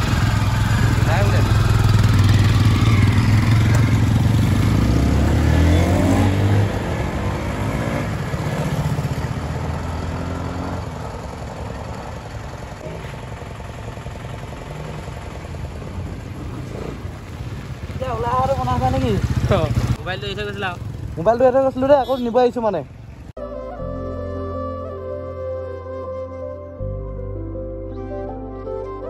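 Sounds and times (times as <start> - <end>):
motorcycle engine revving: 0.0 - 22.2
street traffic: 0.0 - 25.8.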